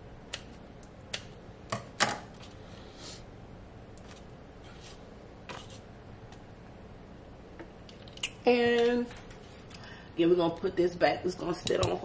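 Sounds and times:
scissors snipping dough: 0.3 - 1.3.

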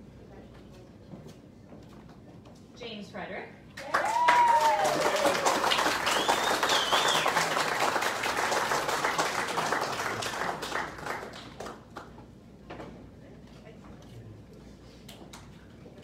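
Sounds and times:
person cheering: 3.8 - 5.6
audience applauding: 3.8 - 12.1.

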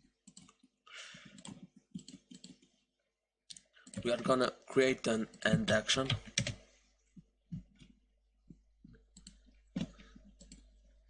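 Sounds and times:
computer mouse clicks: 0.2 - 0.6, 1.2 - 2.7, 9.1 - 10.8.

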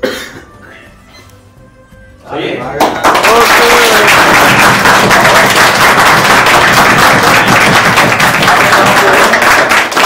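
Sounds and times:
crowd applauding: 2.8 - 10.0.

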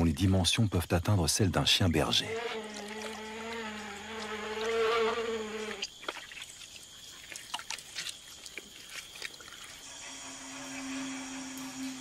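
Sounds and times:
fly buzzing: 2.1 - 6.4, 9.8 - 12.0.

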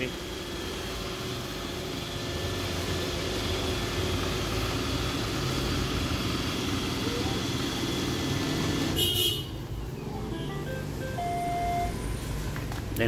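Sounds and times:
robot vacuum motor whir: 0.0 - 9.0.

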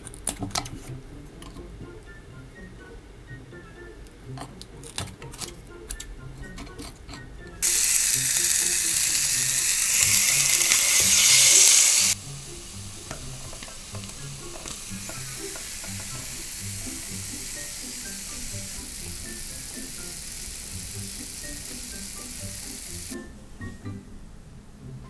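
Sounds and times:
fish sizzling: 7.6 - 23.2.

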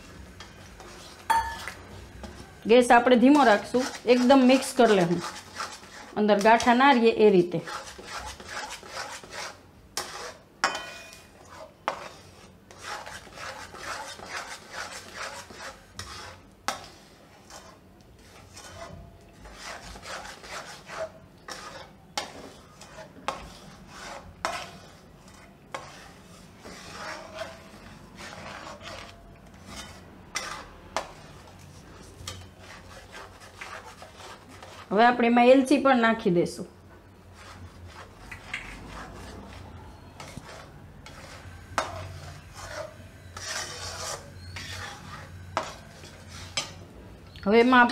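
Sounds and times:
spatula scraping thick mixture in pan: 0.0 - 35.3, 37.0 - 47.9
spatula knocking pan: 7.7 - 11.3.

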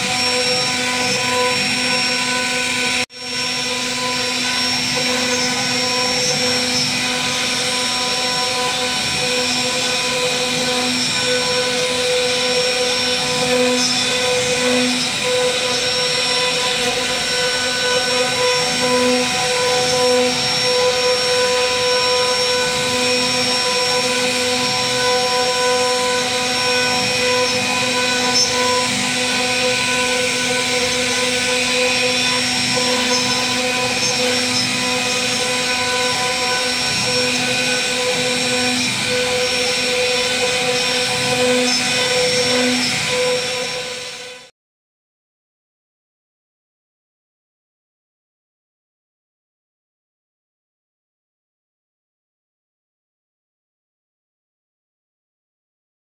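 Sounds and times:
cnc router spindle whine: 0.0 - 44.5.

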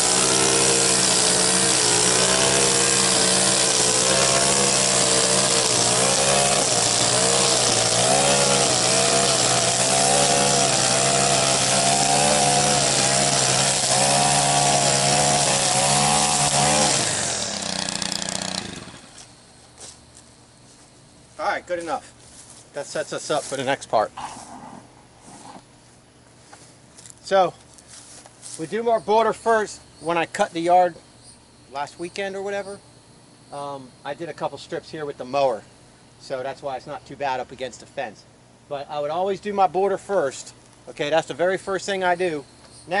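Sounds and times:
string trimmer cutting grass: 0.0 - 20.0, 23.3 - 25.7.

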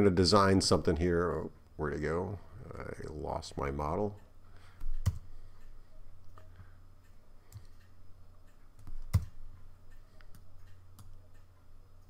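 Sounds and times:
low steady hum: 0.0 - 12.0
computer mouse clicks: 4.8 - 6.5, 7.5 - 7.9, 8.5 - 11.5.

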